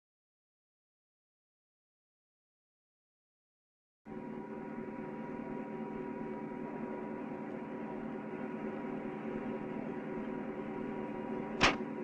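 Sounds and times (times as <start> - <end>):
electrical hum with held tones: 4.1 - 12.0.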